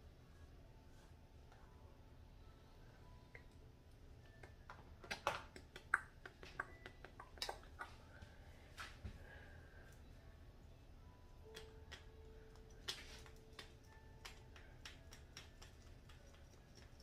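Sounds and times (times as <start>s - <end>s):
makeup items clicking and tapping: 4.3s - 8.0s, 11.4s - 17.0s.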